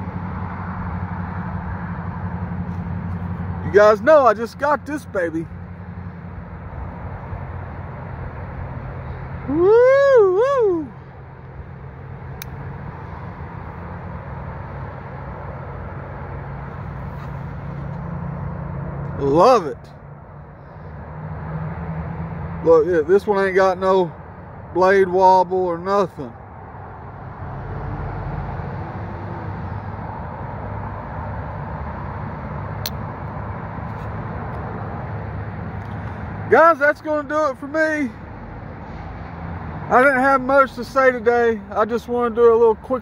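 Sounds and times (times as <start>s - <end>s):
constant low hum: 0.0s - 43.0s
traffic or wind noise: 0.0s - 43.0s
sharp click: 32.8s - 33.0s.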